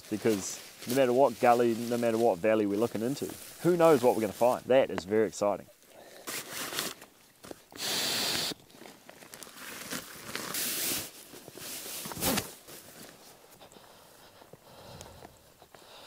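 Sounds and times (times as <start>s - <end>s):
nylon sacks rustling: 0.0s - 4.8s, 8.5s - 13.6s.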